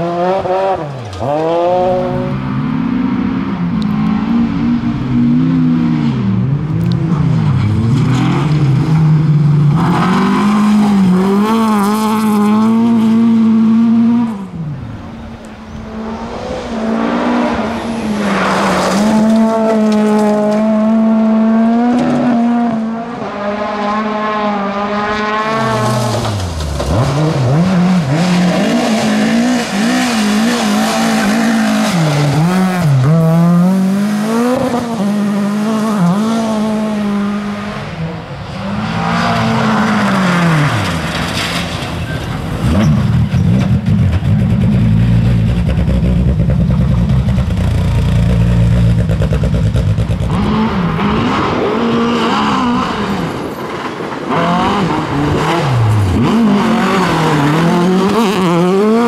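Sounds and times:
rally car engine revving: 0:00.0 - 0:59.0.

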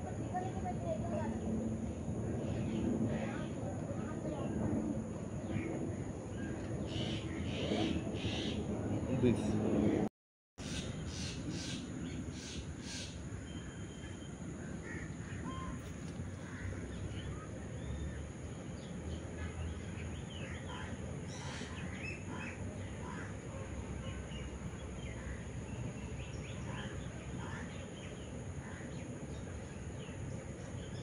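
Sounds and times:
low outdoor rumble: 0:00.0 - 0:31.0
birds chirping and calling: 0:06.4 - 0:10.0, 0:10.6 - 0:14.1, 0:20.2 - 0:23.3.

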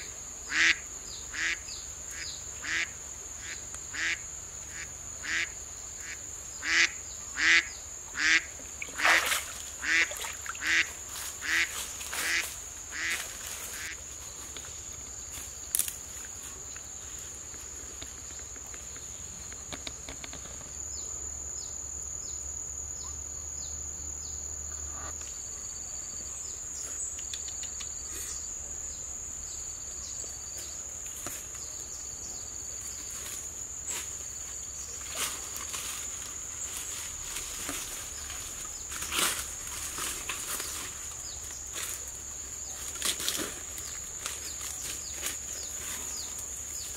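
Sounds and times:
duck quacking: 0:04.8 - 0:08.5, 0:09.8 - 0:13.1.

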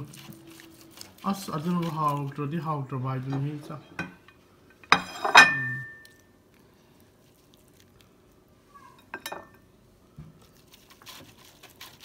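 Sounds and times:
cutlery scraping: 0:04.9 - 0:05.9.

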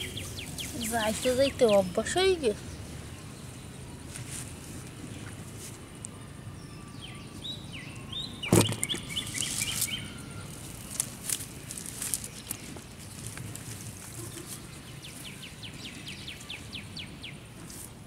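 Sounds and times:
birds chirping: 0:00.0 - 0:04.2, 0:04.8 - 0:17.6
outdoor background noise: 0:00.0 - 0:18.0
loud sharp thump: 0:08.5 - 0:08.9.

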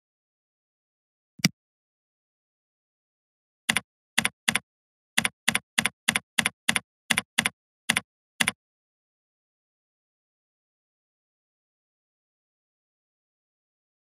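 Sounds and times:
keyboard keystrokes: 0:03.7 - 0:04.6, 0:05.2 - 0:08.6.

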